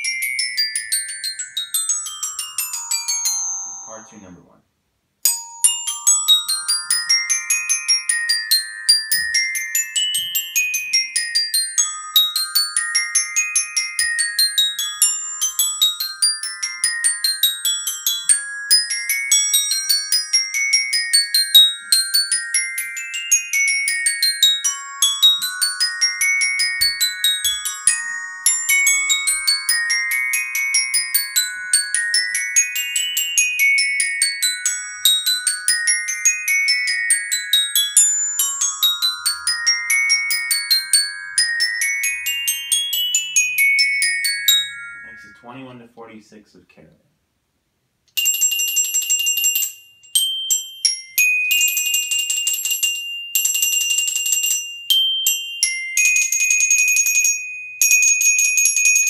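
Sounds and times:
glockenspiel played with mallets: 0:00.0 - 0:04.5, 0:05.2 - 0:45.9, 0:48.2 - 0:59.0.

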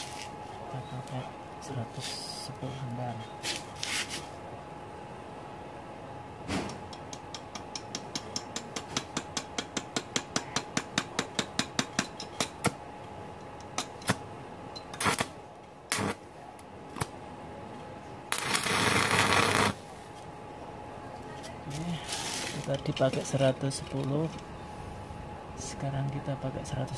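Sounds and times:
sharp welding ticks: 0:06.9 - 0:10.1, 0:14.8 - 0:15.3, 0:15.9 - 0:16.2, 0:18.3 - 0:19.8
welding arc crackling hiss: 0:15.0 - 0:16.2, 0:18.3 - 0:19.9, 0:22.0 - 0:22.7.

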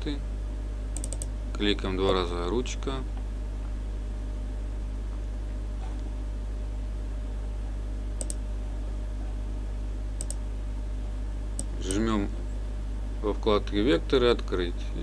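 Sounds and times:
electrical mains hum: 0:00.0 - 0:15.0
faint computer mouse click: 0:01.0 - 0:01.3, 0:08.2 - 0:08.4, 0:10.2 - 0:10.4.

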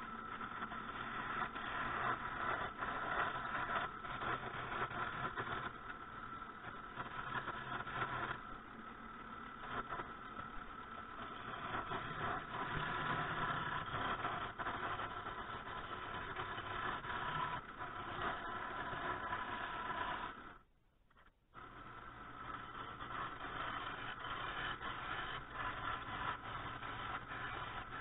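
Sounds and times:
lathe motor whine: 0:00.0 - 0:20.7, 0:21.6 - 0:28.0
tool scraping spinning wood: 0:09.5 - 0:20.6, 0:21.6 - 0:28.0.

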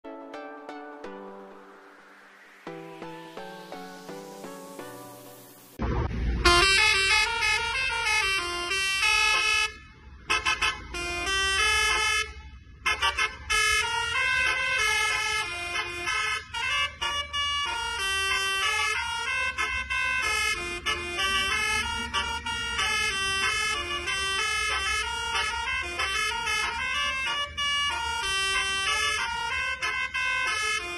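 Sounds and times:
bus engine rumble: 0:05.8 - 0:30.9
air horn melody: 0:06.4 - 0:30.9.

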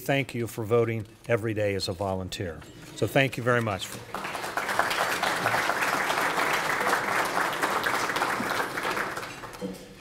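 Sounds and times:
audience applauding: 0:04.0 - 0:09.6.

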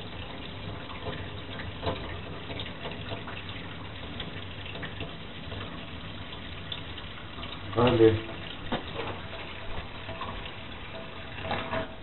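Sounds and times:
tap water running into steel sink: 0:00.0 - 0:12.0.

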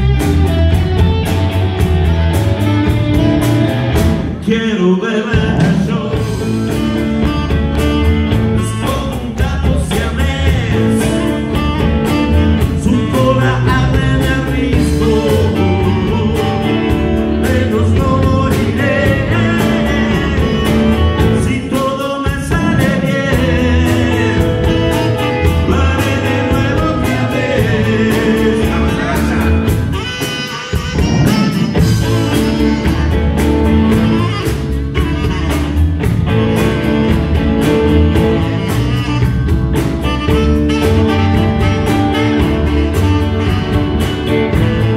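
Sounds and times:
rock and roll band playing: 0:00.0 - 0:44.9
man singing: 0:04.2 - 0:35.6.

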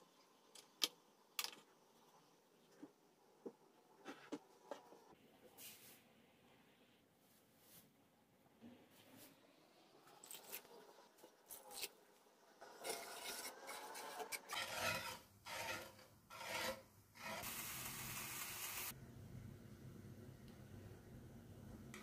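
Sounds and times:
wire whisk scraping a pan: 0:12.6 - 0:17.5.

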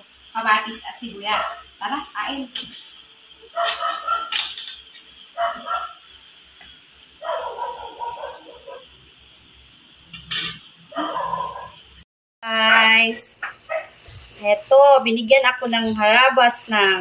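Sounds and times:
dog barking and yipping: 0:03.5 - 0:04.4, 0:05.4 - 0:06.0, 0:07.2 - 0:08.9, 0:10.9 - 0:11.8, 0:13.6 - 0:14.0.

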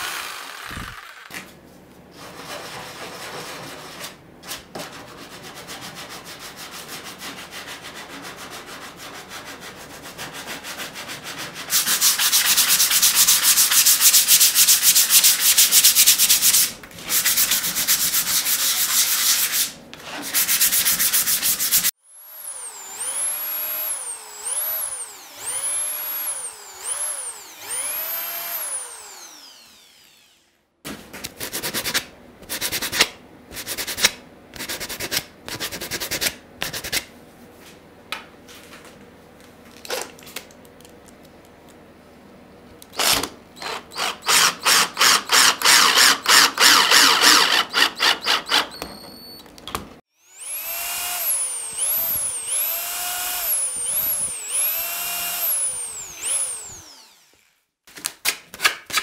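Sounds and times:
sandpaper rasping on plywood: 0:05.2 - 0:21.9
squeaks rising and falling: 0:47.9 - 0:49.4.

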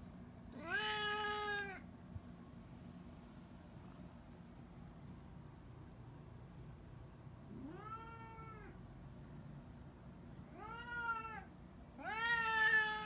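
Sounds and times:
cat meowing: 0:00.6 - 0:01.8, 0:07.5 - 0:08.8, 0:10.5 - 0:13.0.

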